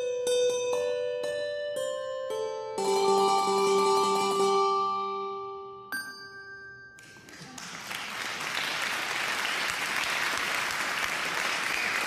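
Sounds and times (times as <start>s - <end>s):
bell-like ringing note: 5.9s - 7.3s
applause: 7.0s - 12.0s.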